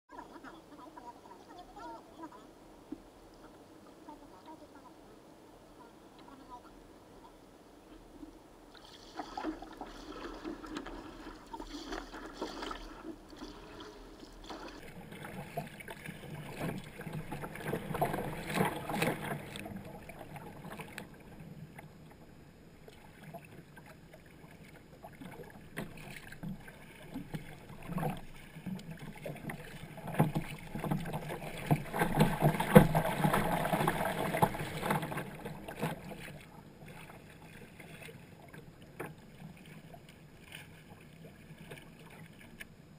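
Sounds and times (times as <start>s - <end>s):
paddle blades splashing: 5.8s - 22.2s, 22.8s - 42.7s
water slapping against hull: 8.7s - 21.8s, 22.8s - 42.7s.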